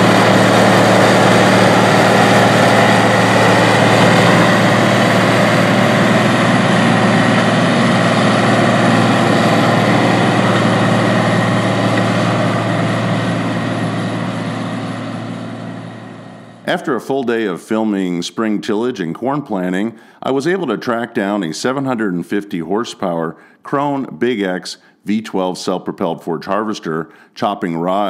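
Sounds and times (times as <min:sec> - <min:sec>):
diesel tractor engine running: 0:00.0 - 0:16.9.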